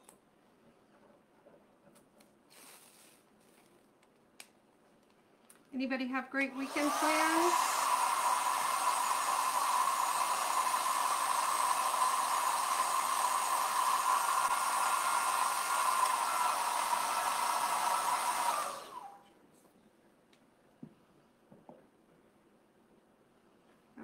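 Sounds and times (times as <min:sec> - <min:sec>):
hair dryer blowing with whine: 0:06.5 - 0:19.2.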